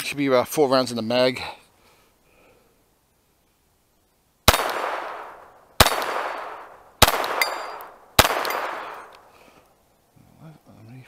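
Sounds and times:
pistol shots with echo: 4.5 - 9.1.

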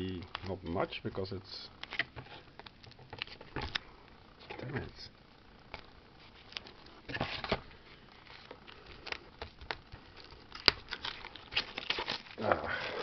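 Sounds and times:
cardboard box rustling and scraping: 7.0 - 7.6.

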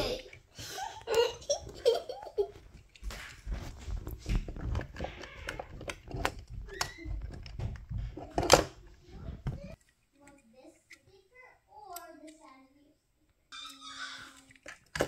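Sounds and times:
child's voice: 8.8 - 14.6.

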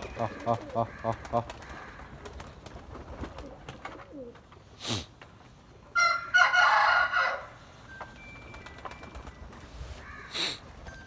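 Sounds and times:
pigeons cooing: 0.0 - 4.5
rooster crowing: 6.0 - 7.6.

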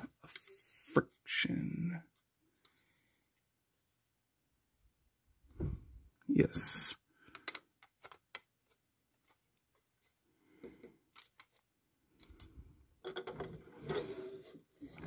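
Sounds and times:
hands handling metal toy: 7.3 - 10.2.

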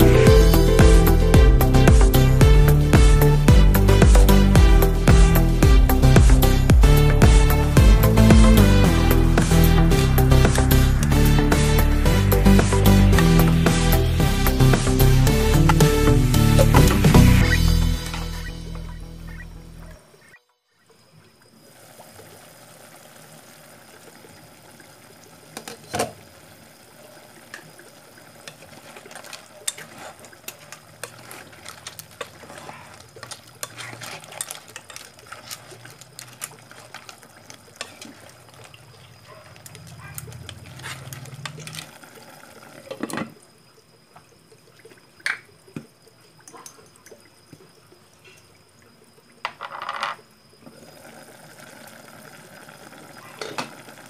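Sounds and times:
soup bubbling in a pot: 21.2 - 49.5, 50.3 - 54.0.

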